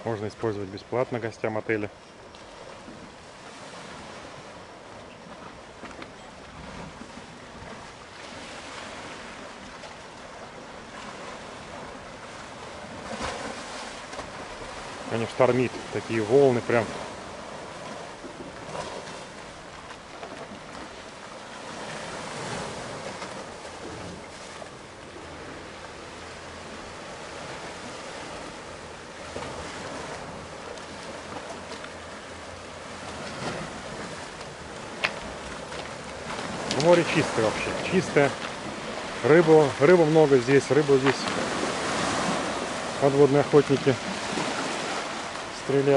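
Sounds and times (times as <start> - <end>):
surf waves breaking: 0.0 - 45.9.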